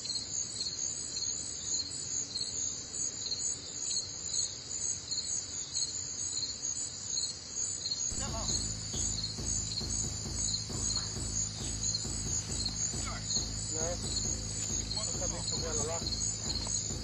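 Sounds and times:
insect chorus trilling: 0.0 - 17.0
low rhythmic rumble: 8.1 - 17.0.

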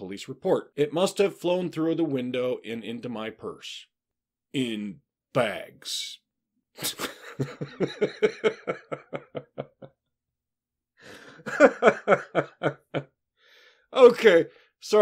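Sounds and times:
man laughing: 6.8 - 10.0, 11.1 - 13.2.

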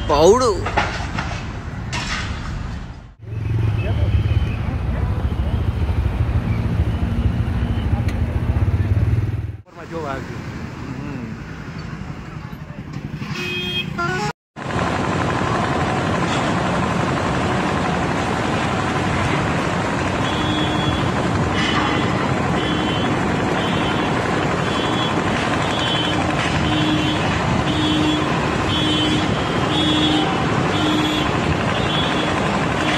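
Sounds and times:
electronic alarm beeping: 6.6 - 8.0
loud rushing fire noise: 14.6 - 32.9.

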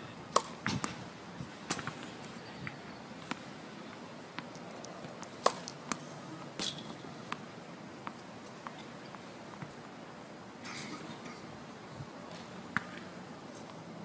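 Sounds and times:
racket striking ball: 0.3 - 1.0, 5.1 - 6.0
tennis balls bouncing: 0.3 - 1.0, 1.6 - 3.5, 4.3 - 9.8.

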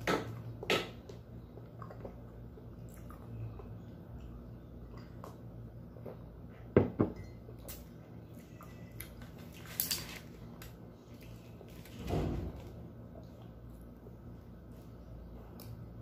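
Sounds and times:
ceramic mug set on table: 6.6 - 7.5.

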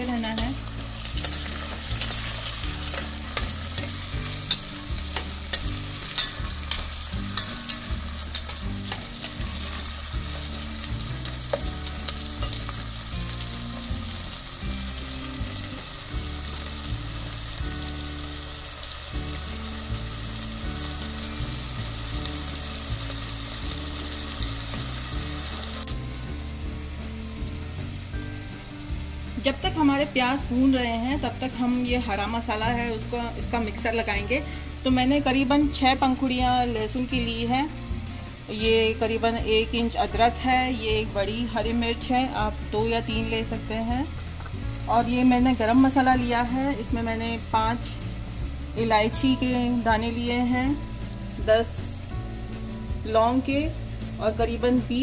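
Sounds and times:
onions sizzling in oil: 0.0 - 55.0
steel spoon scraping a pot: 0.4 - 12.8.

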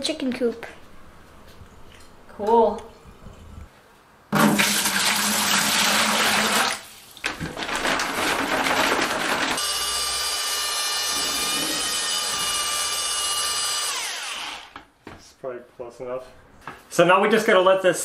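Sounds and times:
water pouring into plastic bucket: 4.4 - 9.6
drill mixing paddle whining: 8.6 - 14.8.

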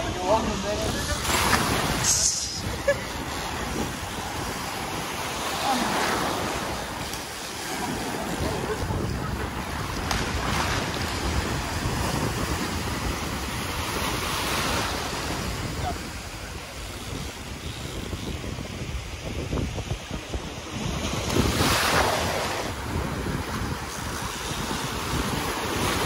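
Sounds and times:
wind rumbling on microphone: 0.0 - 26.0
surf breaking in shallows: 0.4 - 16.9.

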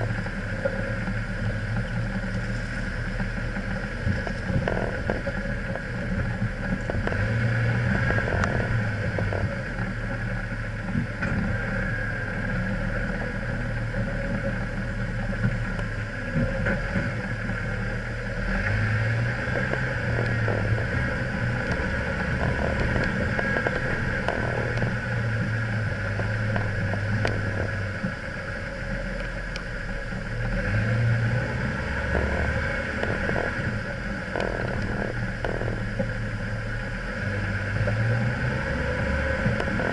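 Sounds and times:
off-road vehicle engine: 0.0 - 39.9
tyres crunching on rocks: 18.6 - 25.4, 31.6 - 36.1.

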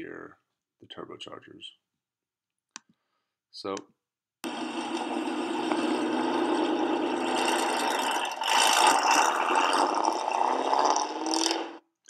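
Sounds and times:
loud car engine accelerating: 4.4 - 11.8.

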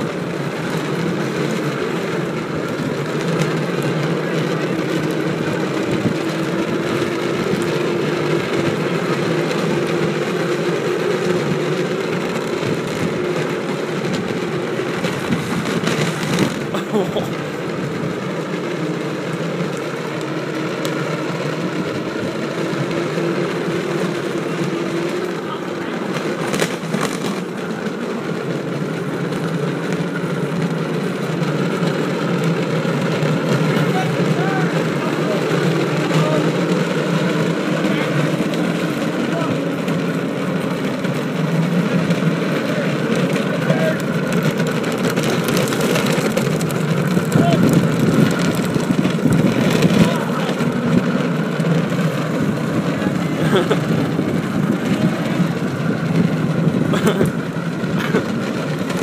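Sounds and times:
wind noise on microphone: 0.0 - 16.8, 33.0 - 59.0
wheels rolling on asphalt: 0.0 - 59.0.

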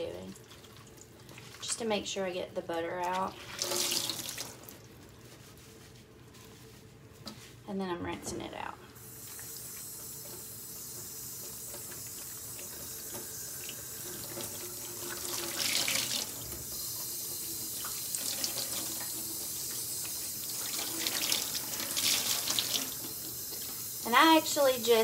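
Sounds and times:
faucet running into sink: 3.0 - 4.6, 9.0 - 24.9.

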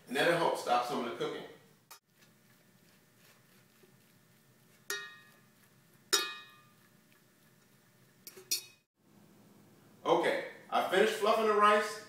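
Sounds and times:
metal fork clinking on metal pot: 4.9 - 5.5, 6.1 - 6.9, 8.2 - 8.9.

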